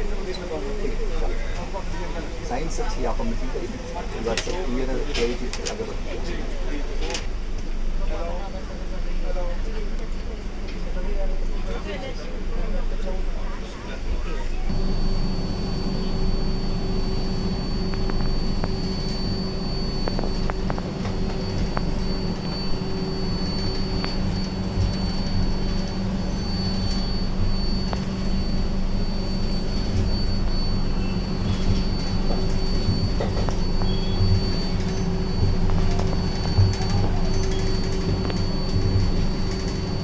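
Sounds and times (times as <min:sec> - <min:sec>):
high constant whine: 0:00.0 - 0:40.0
train coach rumbling: 0:14.4 - 0:40.0.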